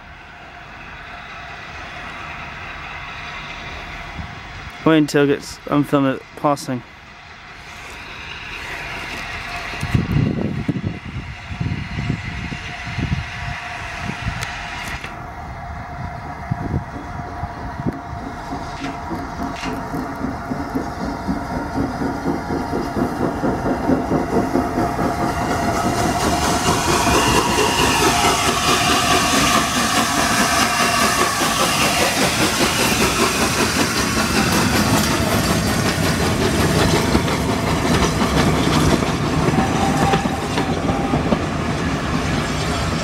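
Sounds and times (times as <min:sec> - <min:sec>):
steam locomotive exhaust chuffing: 0:00.0 - 0:43.0
coaches clacking over rail joints: 0:16.8 - 0:43.0.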